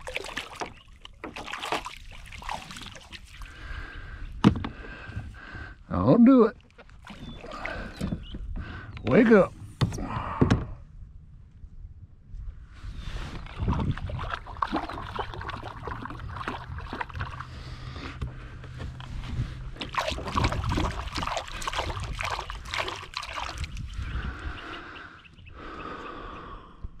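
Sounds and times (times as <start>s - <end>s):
water splashing against kayak hull: 0.0s - 5.4s, 6.6s - 10.3s, 13.1s - 24.3s.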